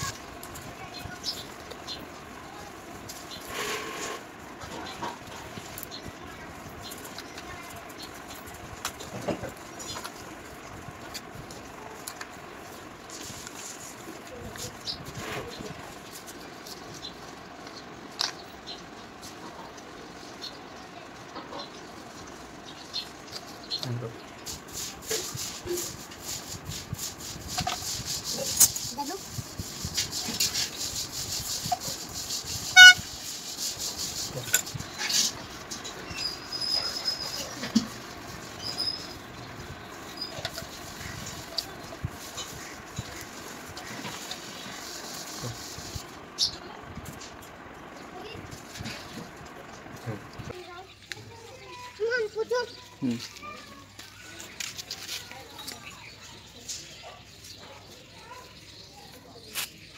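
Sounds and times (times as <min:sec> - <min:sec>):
low steady background noise: 0:00.0 - 0:59.9
plastic scrape: 0:03.4 - 0:05.2
plastic parts squeaking: 0:29.8 - 0:39.2.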